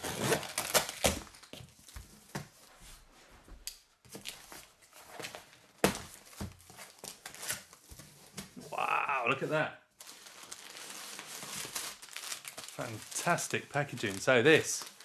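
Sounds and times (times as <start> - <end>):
knife slitting packing tape: 0.0 - 1.3
cardboard flaps and contents scuffing: 0.0 - 8.6.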